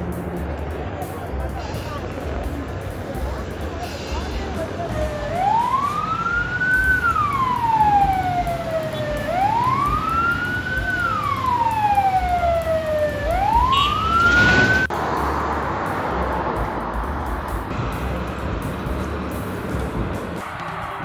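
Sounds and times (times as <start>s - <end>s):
road traffic hiss: 0.0s - 21.0s
wailing siren: 4.9s - 14.9s.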